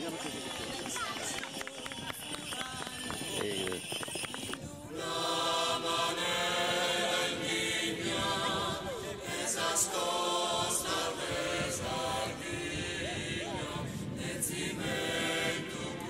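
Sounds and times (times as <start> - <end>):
choir chanting held chords: 4.7 - 16.0.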